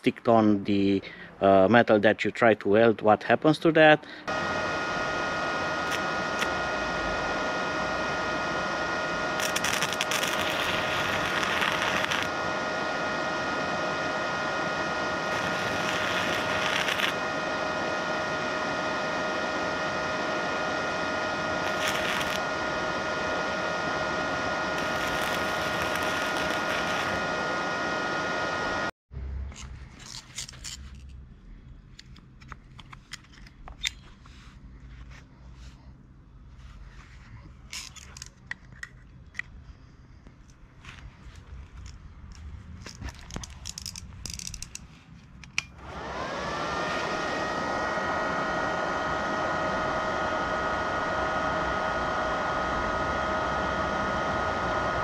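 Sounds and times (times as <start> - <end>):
welder fan whining: 3.7 - 31.0, 40.2 - 55.0
hissing: 9.4 - 12.3, 15.3 - 17.2, 21.6 - 22.4, 24.8 - 27.3.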